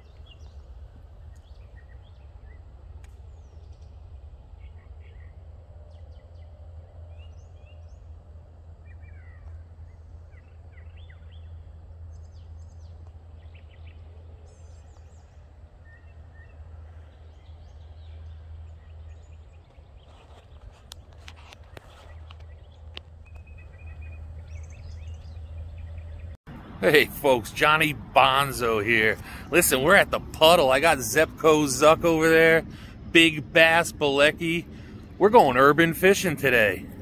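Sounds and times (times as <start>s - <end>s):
birds chirping: 0.0s - 37.0s
low rumble: 22.2s - 37.0s.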